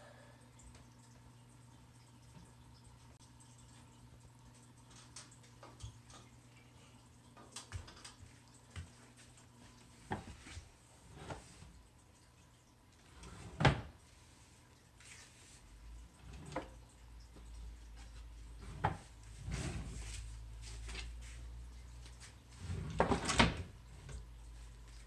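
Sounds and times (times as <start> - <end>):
faint steady hum: 0.0 - 25.0
drawer pulled open with thump: 22.7 - 23.7.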